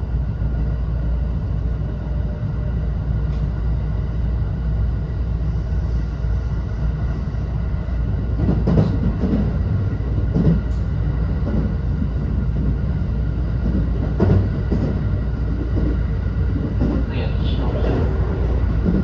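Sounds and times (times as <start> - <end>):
train wheels rumbling on rails: 0.0 - 19.0.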